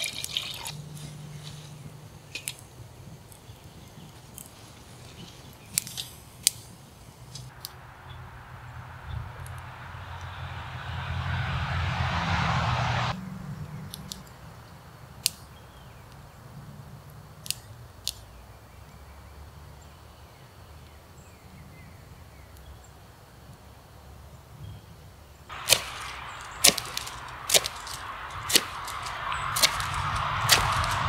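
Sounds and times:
knife shaving wooden stick: 0:25.6 - 0:31.0.

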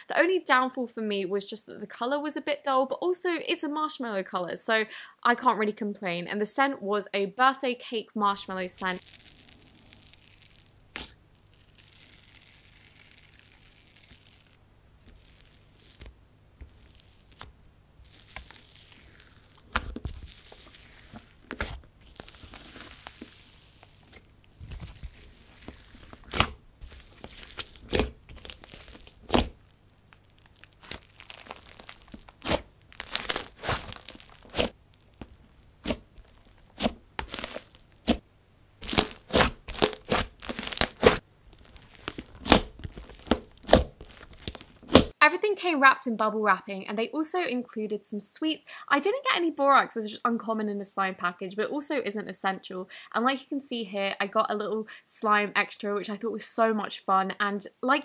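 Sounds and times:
slime popping and crackling: 0:08.7 - 0:38.2, 0:38.8 - 0:45.2.

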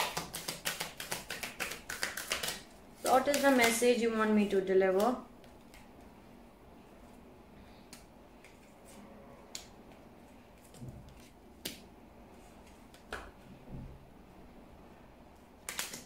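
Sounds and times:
cards snapping: 0:00.0 - 0:02.6, 0:03.2 - 0:03.8, 0:15.6 - 0:16.0.

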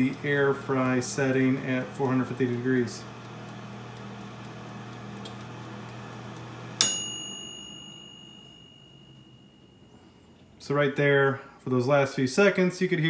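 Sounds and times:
convection fan humming: 0:00.0 - 0:13.0
timer click: 0:01.6 - 0:08.8
bell ding: 0:06.8 - 0:10.4.

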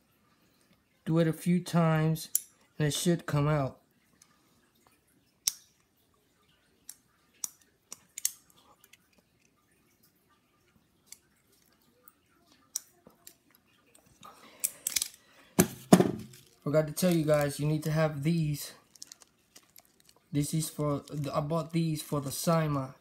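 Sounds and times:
small metal parts clicking: 0:06.9 - 0:09.6, 0:12.7 - 0:15.3, 0:18.9 - 0:20.2.

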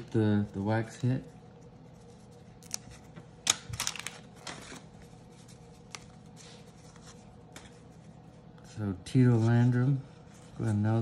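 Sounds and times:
cards being flipped through: 0:02.6 - 0:07.8.

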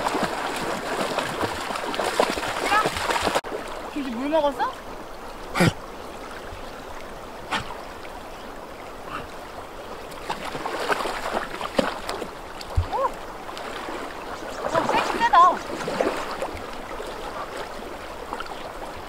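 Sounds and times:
dogs splashing in water: 0:00.0 - 0:04.1, 0:10.2 - 0:18.8
river rushing over stones: 0:00.0 - 0:19.0.

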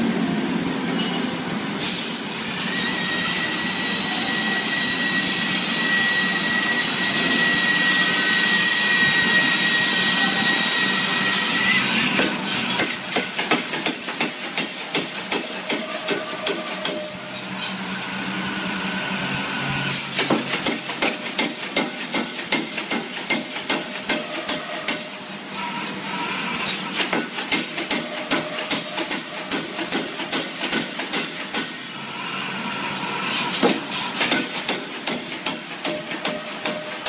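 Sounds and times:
power hammer pounding steel: 0:12.0 - 0:17.1, 0:19.9 - 0:25.2, 0:26.7 - 0:31.8, 0:33.5 - 0:37.0.

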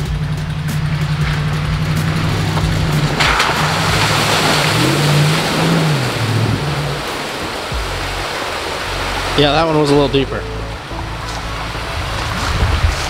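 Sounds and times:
off-road vehicle engine: 0:00.0 - 0:13.0
water splashing: 0:00.0 - 0:13.0.

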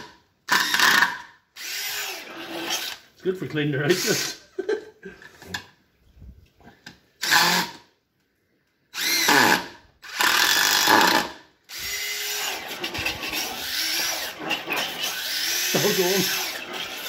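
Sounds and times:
impact driver driving screws: 0:00.0 - 0:03.0, 0:07.2 - 0:07.8, 0:09.0 - 0:17.0.

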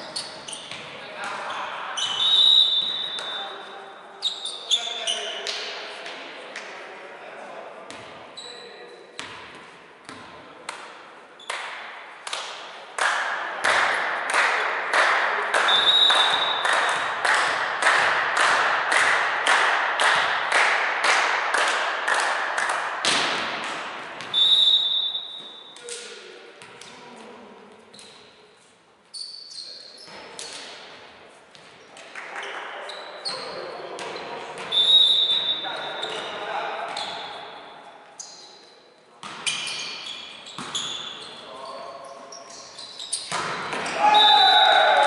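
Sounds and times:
rhythmic clapping: 0:11.5 - 0:23.9
short high whistle blasts: 0:24.3 - 0:25.4.

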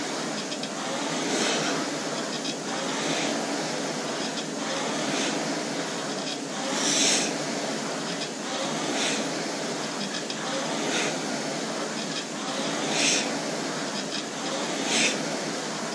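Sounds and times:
rowing machine flywheel whirring: 0:00.0 - 0:15.9.

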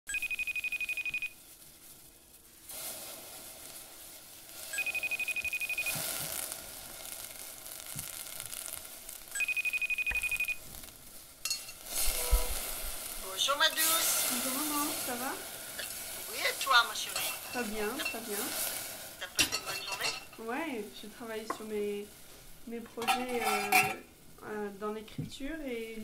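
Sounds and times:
telephone ringing: 0:00.1 - 0:01.4, 0:04.7 - 0:06.0, 0:09.4 - 0:10.6
steady hiss: 0:00.1 - 0:26.0.

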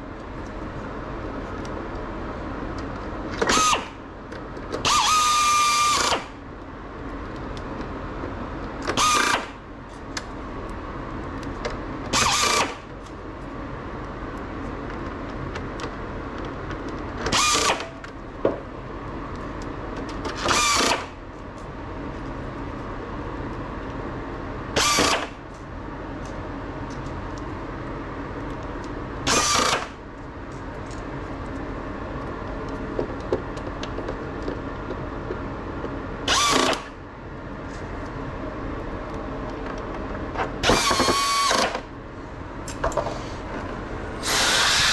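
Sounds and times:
steady hum: 0:00.0 - 0:44.9
power tool running in bursts: 0:04.9 - 0:06.3, 0:12.2 - 0:12.8, 0:36.3 - 0:36.9, 0:40.6 - 0:41.8, 0:44.2 - 0:44.9.

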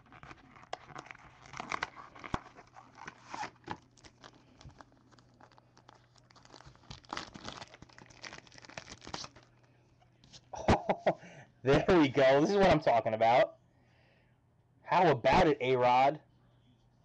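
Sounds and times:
card handling clicks and rustles: 0:00.0 - 0:09.5
wrapper crinkling and tearing: 0:00.0 - 0:09.7.

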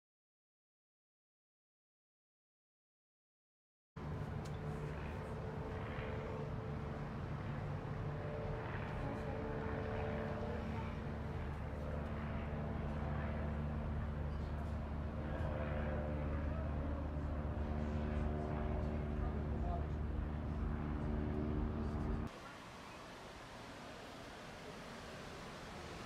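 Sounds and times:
low machinery drone: 0:04.0 - 0:22.6.

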